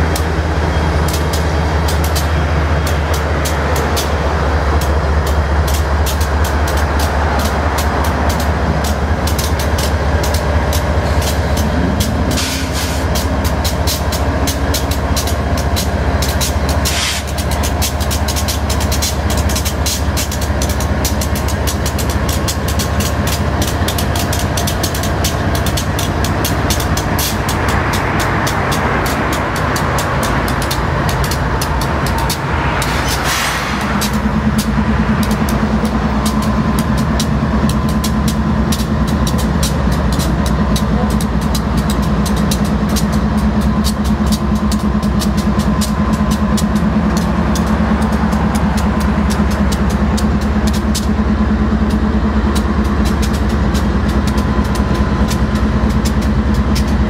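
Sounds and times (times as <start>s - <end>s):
deep locomotive engine drone: 0.0s - 57.0s
sharp clicks: 1.0s - 57.0s.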